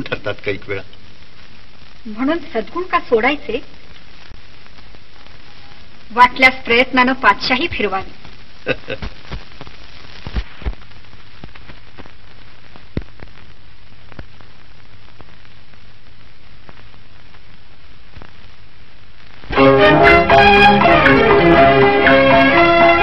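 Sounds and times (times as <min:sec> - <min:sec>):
film soundtrack hiss: 0:00.0 - 0:23.0
clicks and pops: 0:08.2 - 0:15.6
music: 0:19.5 - 0:23.0.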